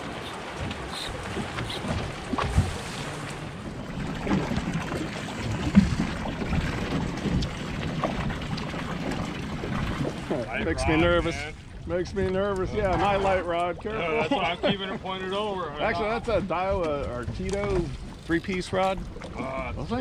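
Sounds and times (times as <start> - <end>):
water slapping against boat hull: 0.0 - 11.3, 15.9 - 20.0.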